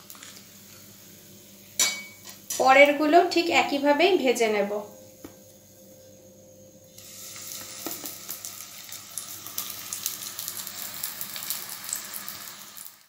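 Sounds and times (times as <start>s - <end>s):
oil sizzling with crackling pops: 0.0s - 3.5s, 6.9s - 13.0s.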